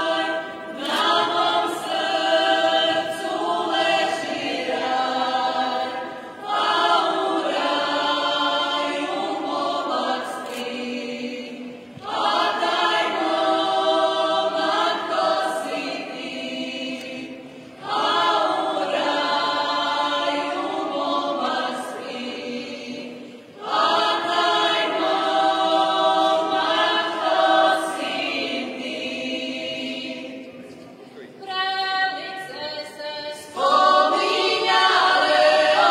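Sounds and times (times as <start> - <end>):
group singing a cappella: 0.0 - 30.6, 31.4 - 35.9.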